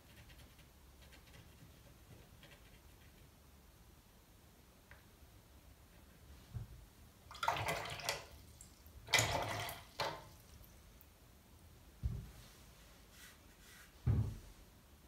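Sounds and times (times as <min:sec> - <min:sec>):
soft knock: 0:12.0 - 0:12.3, 0:14.0 - 0:14.5.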